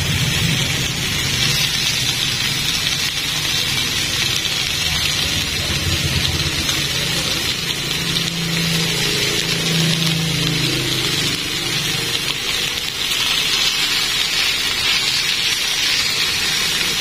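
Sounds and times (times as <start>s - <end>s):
meat sizzling on a grill pan: 0.0s - 17.0s
low hum: 4.4s - 12.9s.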